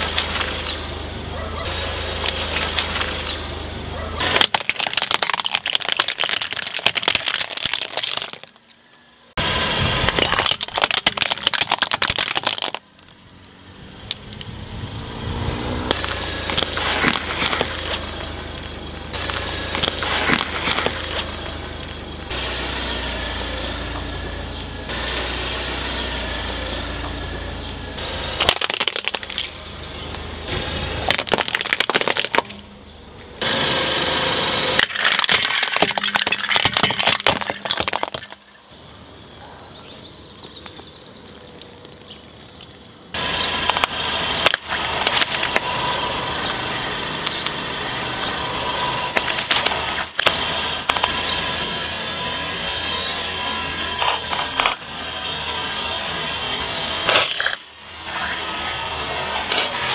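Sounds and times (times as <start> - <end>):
objects cracking and crunching: 0.0 - 0.8, 4.2 - 9.0, 10.0 - 13.3, 15.9 - 22.0, 28.3 - 32.8, 34.7 - 38.7, 43.6 - 45.8, 49.0 - 51.9, 53.5 - 54.8, 57.0 - 58.5, 59.2 - 59.9
car engine running: 0.0 - 39.3, 42.0 - 59.9.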